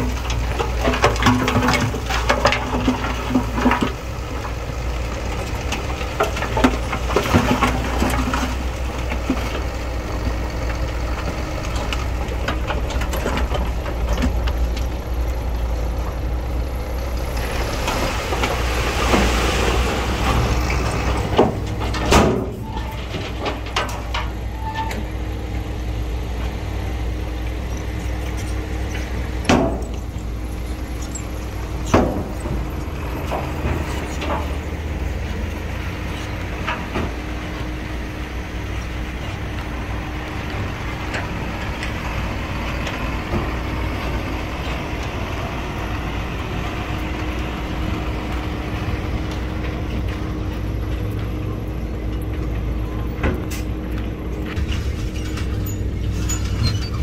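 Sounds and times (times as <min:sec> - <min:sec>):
metal clanks and knocks: 0:00.0 - 0:16.5, 0:20.2 - 0:25.3, 0:27.4 - 0:37.8, 0:49.2 - 0:57.0
diesel machinery running: 0:00.0 - 0:57.0.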